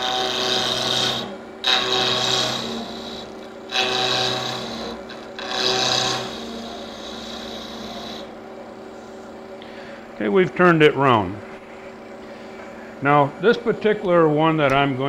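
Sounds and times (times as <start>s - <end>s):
tool scraping spinning wood: 0.0s - 9.4s
wood lathe humming: 0.0s - 15.0s.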